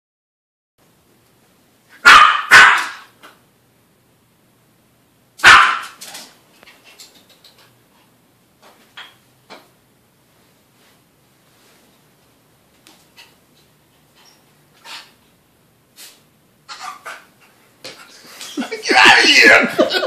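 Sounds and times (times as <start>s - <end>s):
small dog barking: 2.0s - 3.1s, 5.4s - 6.0s.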